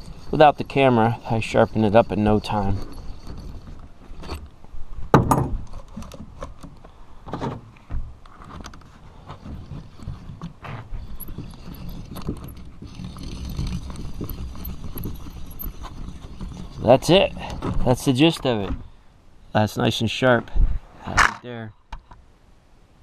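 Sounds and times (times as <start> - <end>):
metal scraping: 0.0 - 4.6, 8.4 - 18.9.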